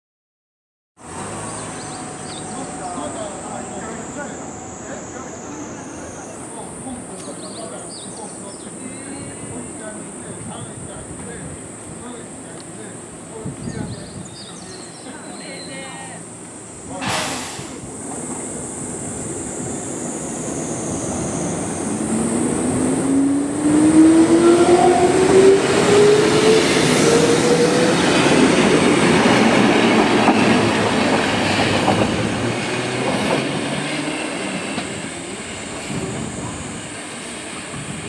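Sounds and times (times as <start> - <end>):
train wheels clattering on rails: 26.8 - 38.0.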